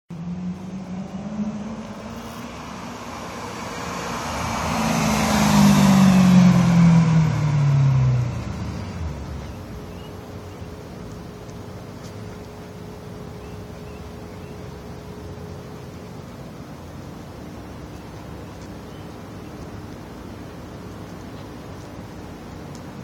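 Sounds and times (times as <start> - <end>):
car engine driving past: 0.1 - 10.5.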